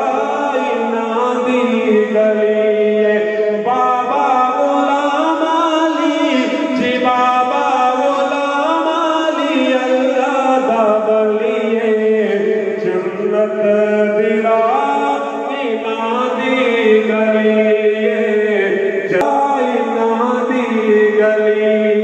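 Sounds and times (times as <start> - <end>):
man singing a devotional chant: 0.0 - 22.0.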